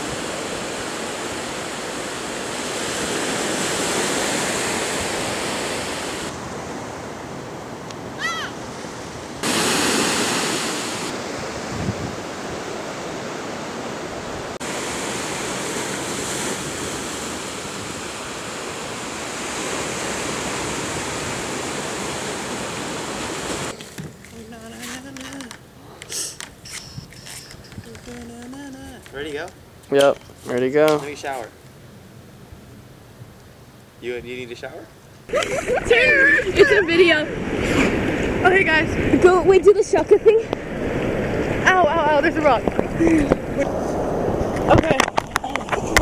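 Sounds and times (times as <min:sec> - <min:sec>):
ocean surf rushing: 0:00.0 - 0:23.8, 0:35.3 - 0:46.0
wind: 0:00.0 - 0:46.0
short high chirp: 0:26.2 - 0:27.7.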